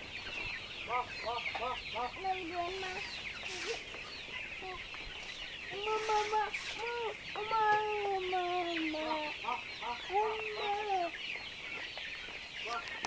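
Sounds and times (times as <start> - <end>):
chickens wavering calls: 0.0 - 13.0
chatter of high peeps: 1.0 - 4.0, 4.6 - 11.2.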